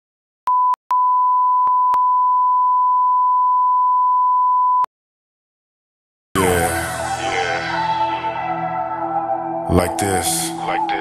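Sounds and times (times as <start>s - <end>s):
music: 6.4s - 11.0s.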